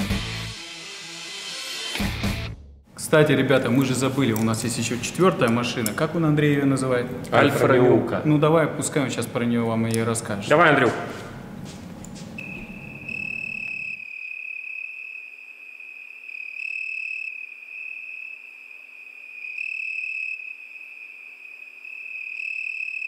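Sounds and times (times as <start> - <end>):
crickets chirring: 12.4 - 23.0.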